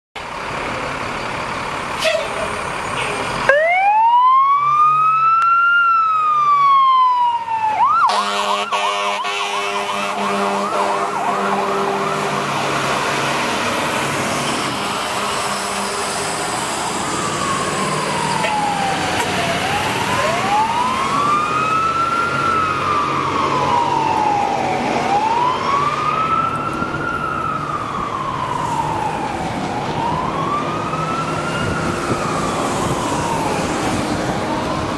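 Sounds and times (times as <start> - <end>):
fire engine siren wailing: 0.2 - 34.9
blaring horn: 8.0 - 12.7, 14.4 - 16.4.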